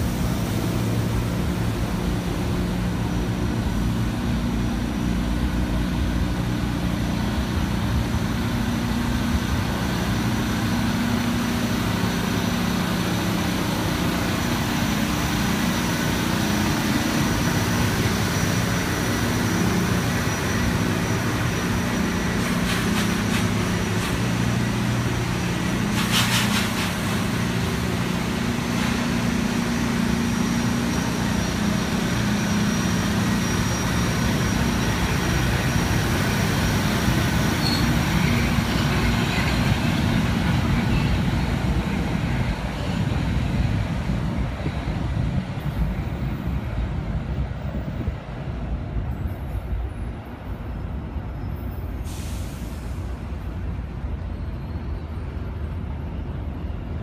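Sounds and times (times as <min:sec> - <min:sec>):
train motors humming: 0:00.0 - 0:49.1, 0:49.7 - 0:57.0
brief hiss: 0:25.9 - 0:27.4, 0:52.0 - 0:53.4.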